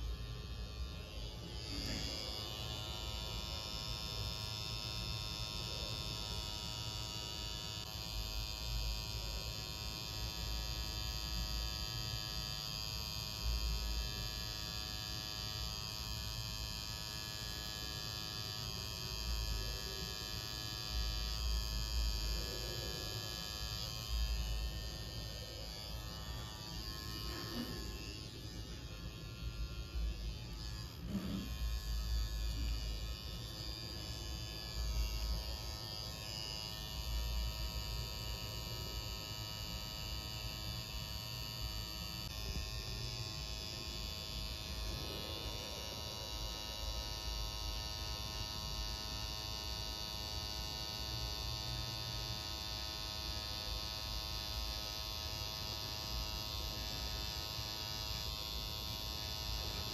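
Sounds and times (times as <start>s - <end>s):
tattoo machine buzzing: 0.0s - 59.9s.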